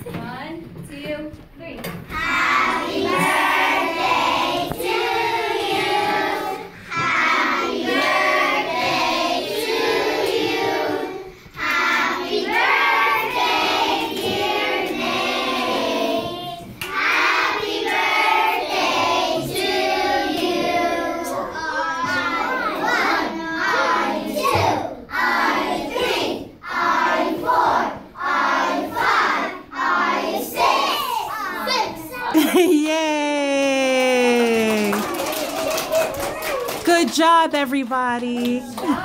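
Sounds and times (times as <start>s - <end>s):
young children singing: 2.1s - 32.6s
children clapping along: 33.8s - 39.0s.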